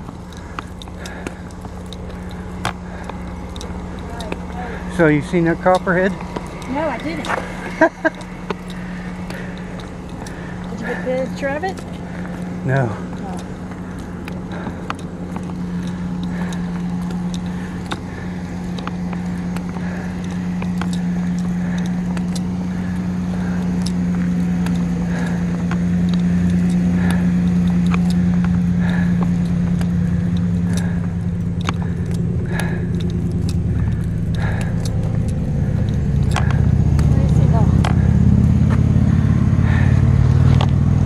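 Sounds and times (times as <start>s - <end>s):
car engine and road hum: 0.0s - 41.0s.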